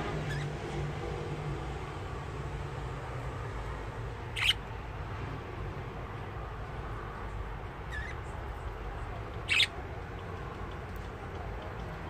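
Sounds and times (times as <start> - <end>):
budgerigar chirping: 4.3 - 4.6, 7.9 - 8.2, 9.4 - 9.8.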